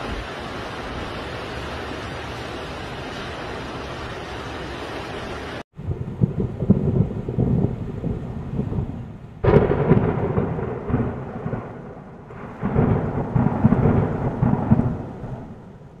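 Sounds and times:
rain hissing: 0:00.0 - 0:16.0
thunder crack and rumble: 0:05.7 - 0:16.0.

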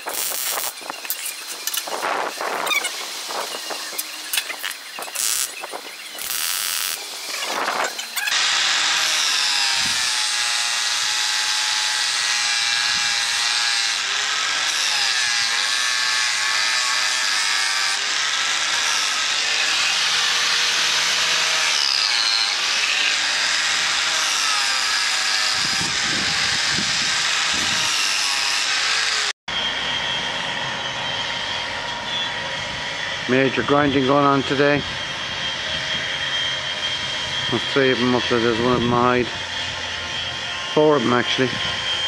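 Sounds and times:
angle grinder grinding steel: 0:00.0 - 0:29.3.

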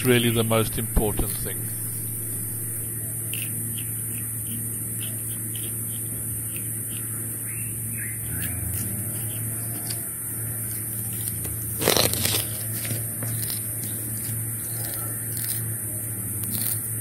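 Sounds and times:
low hum: 0:00.0 - 0:04.8
monkey chewing grass: 0:00.0 - 0:17.0.

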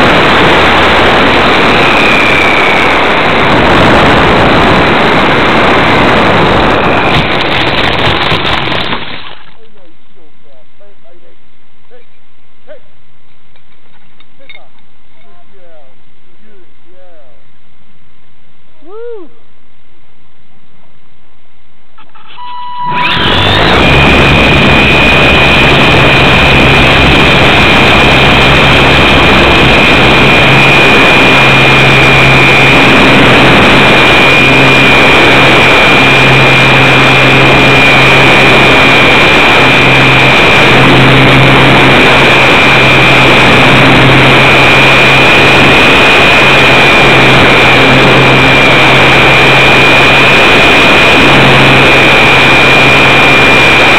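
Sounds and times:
electric motor propeller whine: 0:00.0 - 0:09.4, 0:22.1 - 0:53.9
loud rushing noise: 0:00.0 - 0:09.5, 0:22.8 - 0:53.9.

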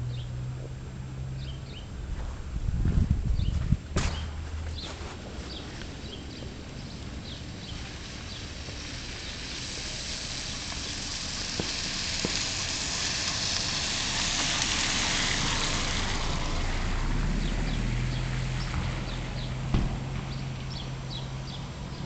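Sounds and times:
car tyres hissing on wet street: 0:05.2 - 0:22.0.

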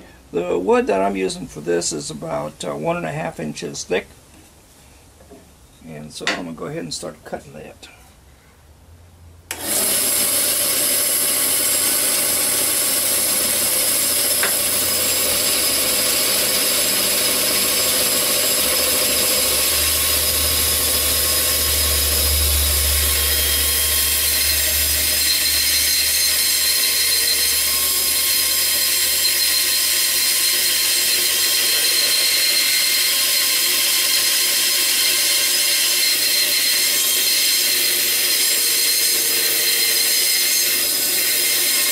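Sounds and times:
bandsaw cutting wood: 0:09.5 - 0:41.9.

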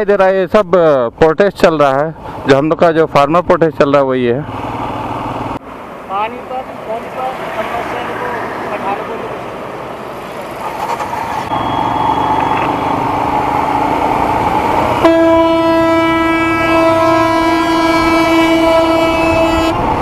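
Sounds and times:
road noise: 0:00.0 - 0:20.0
loud vehicle air horn: 0:15.0 - 0:19.9.

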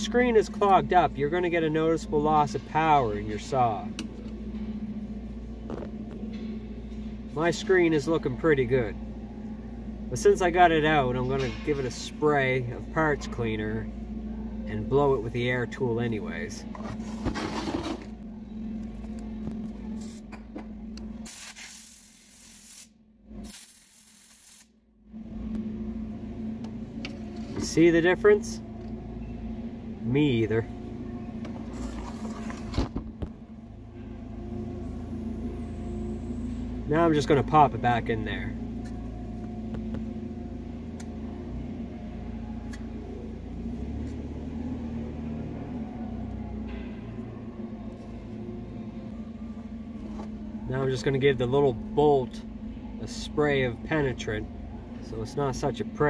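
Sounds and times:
low machine hum: 0:00.0 - 0:56.0
compressed air blasts: 0:21.2 - 0:24.7.

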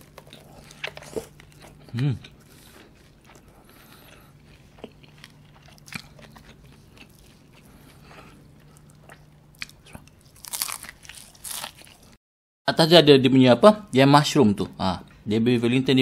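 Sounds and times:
soft chewing: 0:00.0 - 0:12.2
crunchy bite into pastry: 0:04.8 - 0:12.2.

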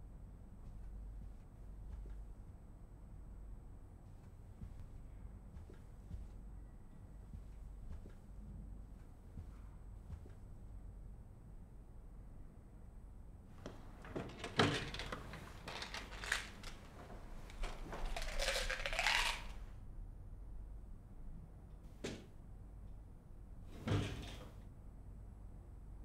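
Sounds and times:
rummaging knocks and clicks: 0:13.6 - 0:19.5
wooden drawer opening: 0:13.7 - 0:17.9.

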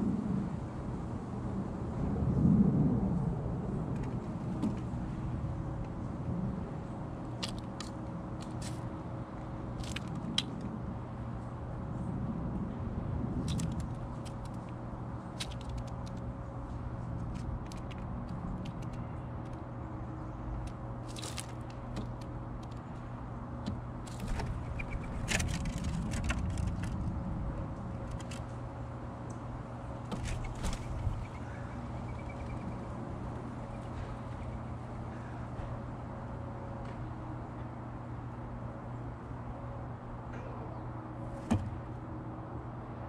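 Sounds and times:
low mechanical hum: 0:00.0 - 0:43.0
bird pecking seed: 0:07.2 - 0:08.9, 0:13.4 - 0:16.3, 0:17.2 - 0:19.6, 0:20.5 - 0:23.0, 0:24.0 - 0:27.1.

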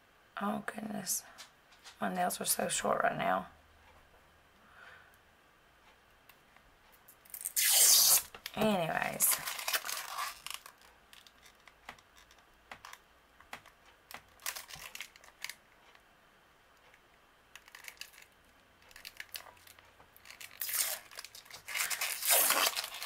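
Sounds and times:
plastic film crinkling: 0:07.3 - 0:16.0, 0:17.6 - 0:23.0.

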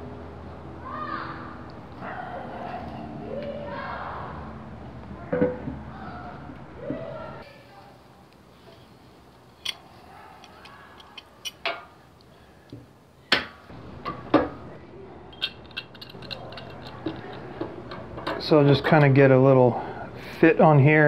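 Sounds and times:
metal clamp clicking and knocking: 0:10.4 - 0:11.9, 0:15.4 - 0:18.4.

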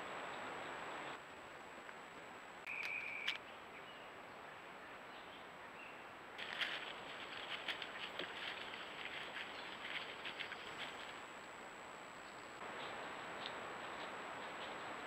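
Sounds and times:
animals foraging in dry leaves: 0:06.4 - 0:11.8, 0:12.6 - 0:15.0.

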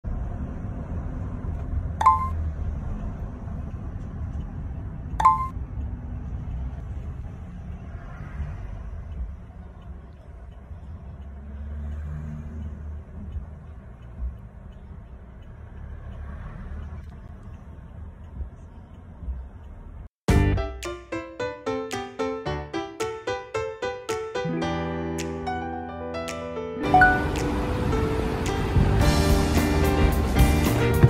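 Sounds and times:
bright ringing pings: 0:02.0 - 0:02.4, 0:05.2 - 0:05.5.

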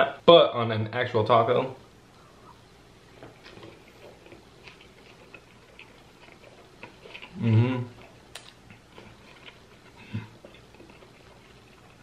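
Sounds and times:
wet mouth clicks chewing: 0:03.2 - 0:12.0
person humming approval: 0:07.4 - 0:08.0.

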